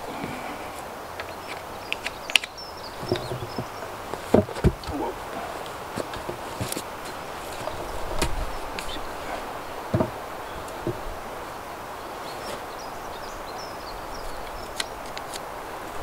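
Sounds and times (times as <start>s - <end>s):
steady background noise: 0.0s - 16.0s
log knocking on wooden posts: 1.2s - 11.4s.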